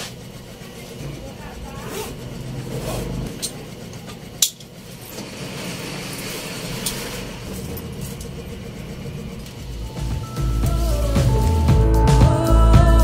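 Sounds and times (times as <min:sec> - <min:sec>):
low steady rumble: 0:00.4 - 0:13.0.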